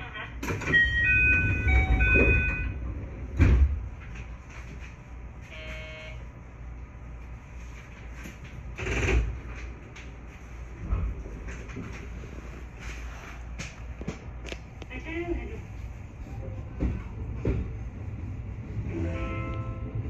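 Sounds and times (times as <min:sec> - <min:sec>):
train doors sliding shut: 0:00.4 - 0:05.8, 0:07.8 - 0:14.2
electronic door chime: 0:00.7 - 0:02.8
short buzzer tone: 0:05.5 - 0:06.2.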